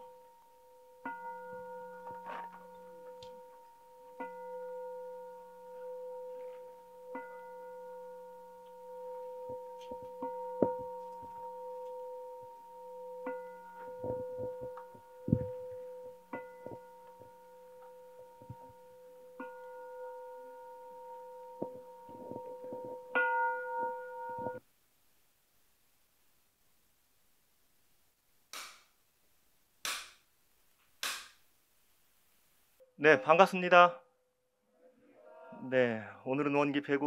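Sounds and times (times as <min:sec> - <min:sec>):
singing bowl ringing: 0:00.0 - 0:24.6.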